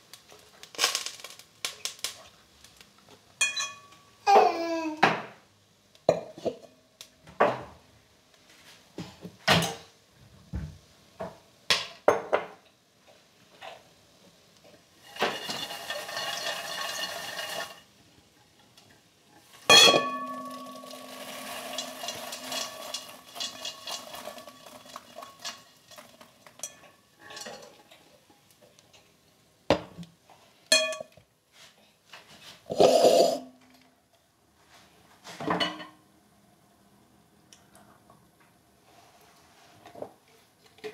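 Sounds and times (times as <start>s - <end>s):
popcorn rustling: 0.0s - 3.2s, 15.0s - 17.9s, 19.4s - 26.6s
metal pot clinking and knocking: 3.4s - 4.0s, 19.6s - 27.8s, 30.7s - 31.2s.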